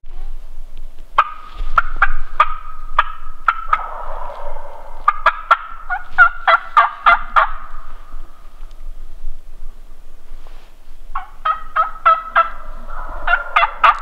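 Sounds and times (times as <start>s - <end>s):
turkeys gobbling: 1.2s - 8.8s, 11.1s - 14.0s.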